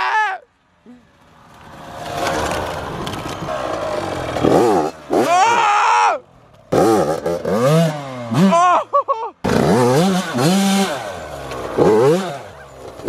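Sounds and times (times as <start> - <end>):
dirt bike engine revving: 1.6 - 5.8, 6.7 - 8.8, 9.4 - 13.0.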